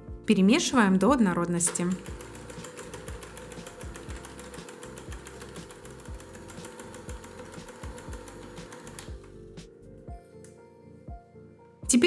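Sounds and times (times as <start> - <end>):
electric hand mixer whirring: 1.6 - 9.4.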